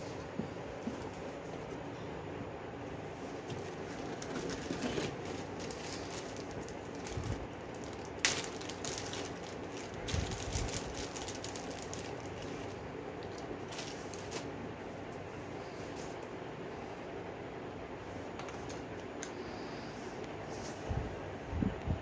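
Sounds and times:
steady background hum: 0.0 - 22.0
packaging rustling: 3.4 - 14.6.

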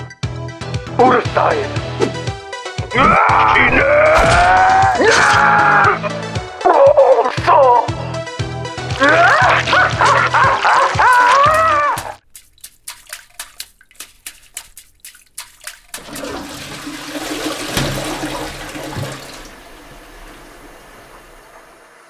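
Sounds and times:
person shouting: 2.9 - 6.2, 9.0 - 10.1, 11.0 - 12.2
toilet flushing: 15.9 - 22.0.

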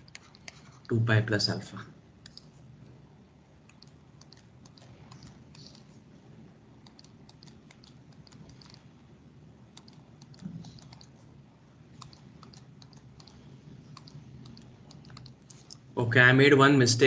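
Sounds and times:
low steady hum: 0.0 - 17.0
light tapping clicks: 14.0 - 15.8.

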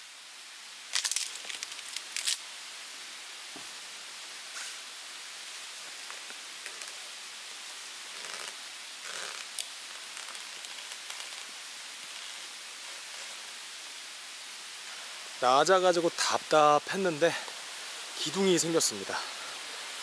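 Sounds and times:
mountain stream rushing: 0.0 - 20.0
branch rustling and tapping: 8.2 - 11.6.

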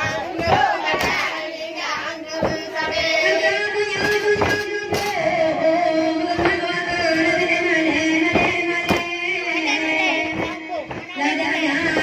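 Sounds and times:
sharp percussive strikes: 0.0 - 5.2
voices chanting: 0.0 - 12.0.

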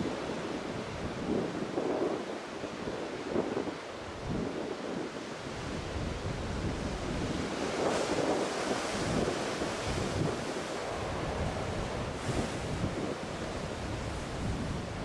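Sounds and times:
wind buffeting microphone: 0.0 - 15.0
heavy surf breaking: 5.7 - 15.0.

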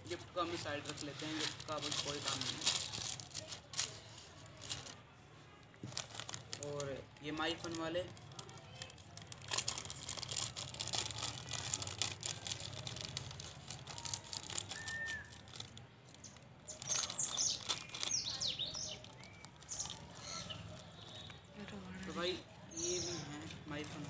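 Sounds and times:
plastic packet crinkling: 0.1 - 5.0, 5.7 - 22.3
snacks poured into bowl: 7.5 - 20.6
birds chirping: 16.1 - 24.0.

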